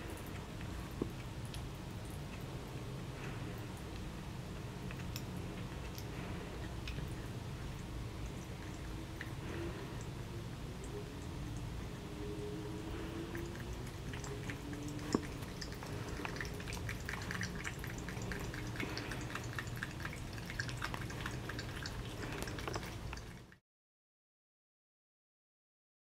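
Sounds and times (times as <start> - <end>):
cat lapping water: 0.0 - 23.6
tap water trickling into sink: 13.5 - 23.4.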